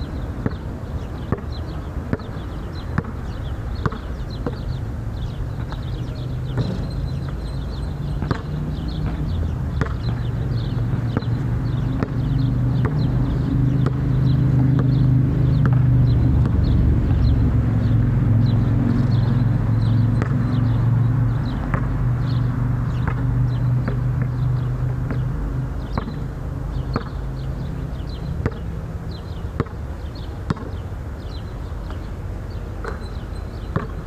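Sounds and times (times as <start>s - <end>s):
basketball bouncing: 0.4s - 0.6s, 1.3s - 2.4s, 3.0s - 4.7s, 6.5s - 17.3s, 19.8s - 20.7s, 21.5s - 27.2s, 28.4s - 28.7s, 29.6s - 29.8s, 30.5s - 30.8s, 33.7s - 34.0s
engine rumble: 3.0s - 34.0s.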